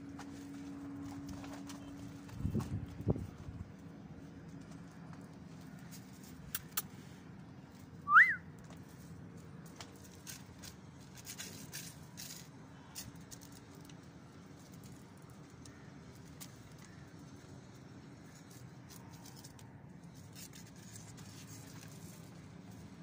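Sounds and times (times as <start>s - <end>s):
rising and falling whistle: 8.1s - 8.4s.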